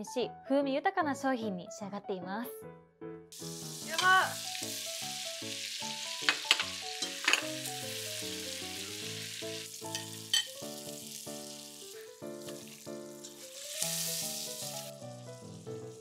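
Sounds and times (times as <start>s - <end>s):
soft background music: 0.0s - 16.0s
bacon and butter sizzling: 3.4s - 16.0s.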